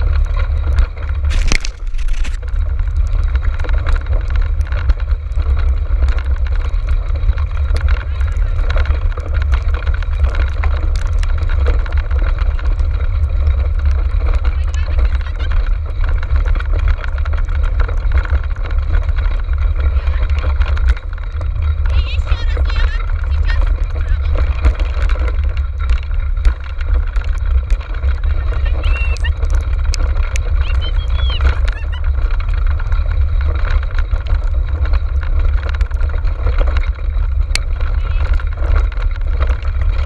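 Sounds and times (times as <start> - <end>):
cart rolling and rattling: 0.0 - 40.0
wind buffeting microphone: 0.0 - 40.0.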